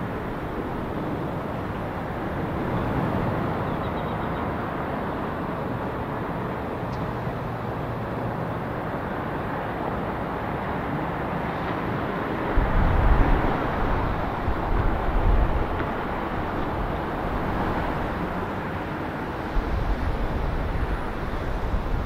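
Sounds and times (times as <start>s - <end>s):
wind buffeting microphone: 10.8s - 22.0s.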